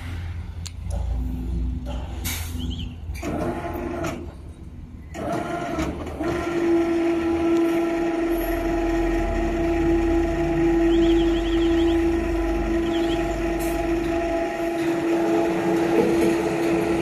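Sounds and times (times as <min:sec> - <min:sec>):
crane motor drone: 0:05.1 - 0:17.0.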